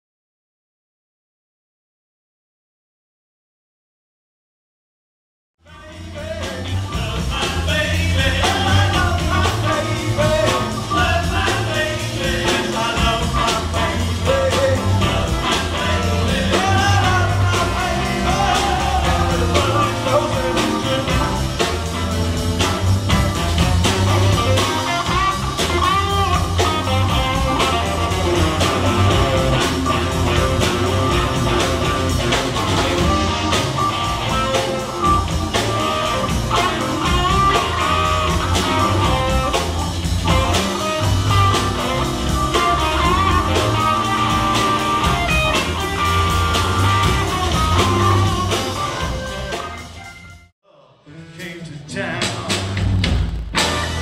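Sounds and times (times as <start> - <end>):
drum kit: 5.6 - 50.5, 51.3 - 54.0
electric guitar: 5.7 - 50.5
saxophone: 13.3 - 50.5.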